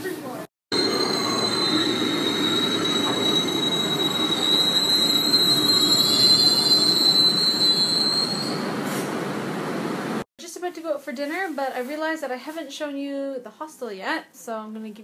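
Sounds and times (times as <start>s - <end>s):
subway train rumble: 0.0s - 10.2s
high-pitched squeal: 0.7s - 8.8s.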